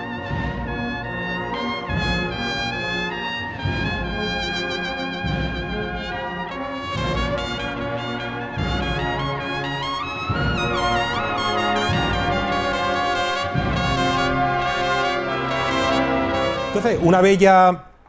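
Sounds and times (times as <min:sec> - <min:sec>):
cornet solo melody: 0:00.0 - 0:18.0
low sustained accompanying chords: 0:04.9 - 0:18.0.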